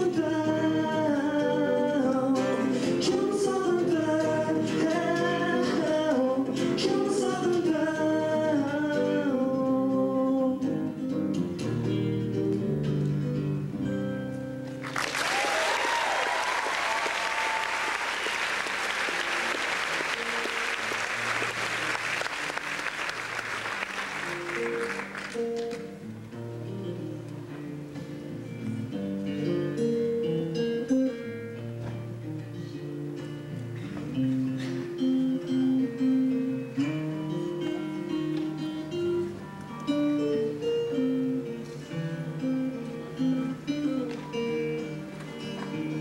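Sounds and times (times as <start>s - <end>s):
man singing: 0.0s - 11.2s
strummed acoustic guitar: 0.0s - 14.8s, 19.2s - 46.0s
audience applause and cheering: 14.8s - 25.8s.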